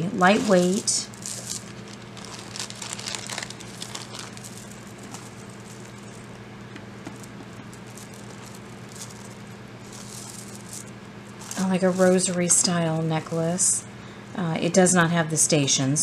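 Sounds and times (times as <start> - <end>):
plastic beads clicking and rustling: 0.2 - 12.6.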